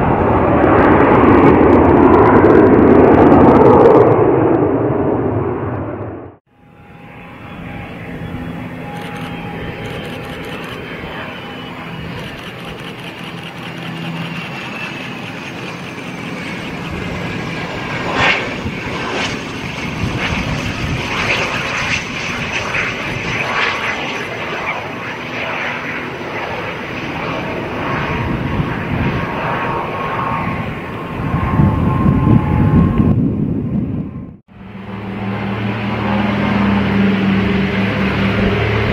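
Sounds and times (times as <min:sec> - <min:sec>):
jet engine rush and whine: 0:00.0 - 0:38.9
low rumble of plane rolling: 0:00.0 - 0:38.9
sharp crackles: 0:12.0 - 0:16.6.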